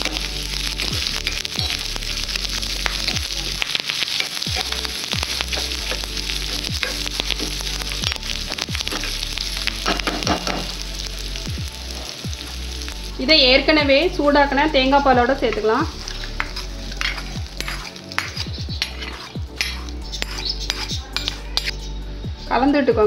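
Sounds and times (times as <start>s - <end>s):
sizzling in hot oil: 0.0s - 22.9s
steel spoon scraping ladle: 15.6s - 21.9s.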